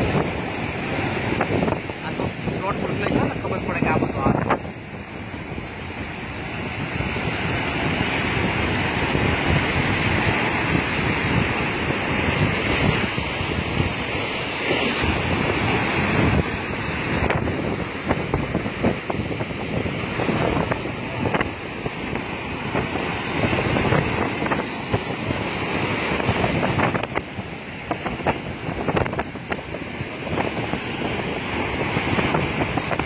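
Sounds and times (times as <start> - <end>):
waves breaking on shore: 0.0 - 33.0
wind buffeting microphone: 0.0 - 33.0.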